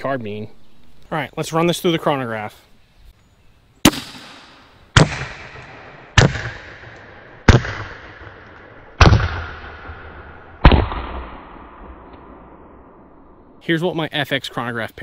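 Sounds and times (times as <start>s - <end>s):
air pistol shots: 3.8s - 12.5s.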